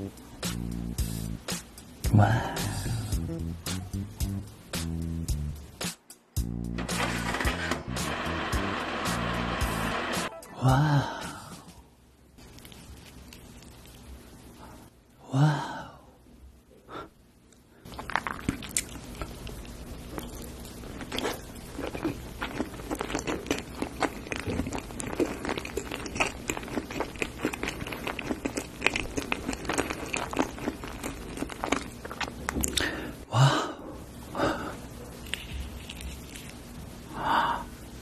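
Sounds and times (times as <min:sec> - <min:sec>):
wet chewing mouth sounds: 0:17.9 - 0:32.9.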